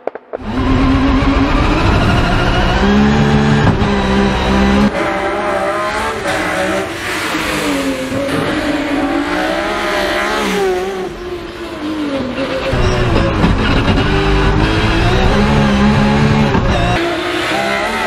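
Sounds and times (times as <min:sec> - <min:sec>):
race car engine revving: 0:00.4 - 0:18.0.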